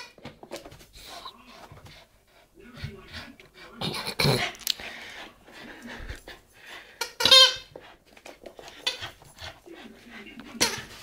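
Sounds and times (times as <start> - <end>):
high squeak of toy ball: 7.0 - 7.7
dog chewing and scuffling: 7.3 - 11.0.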